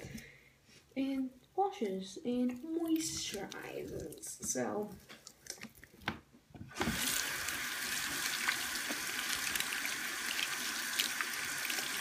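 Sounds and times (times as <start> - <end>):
water running into sink: 6.7 - 12.0.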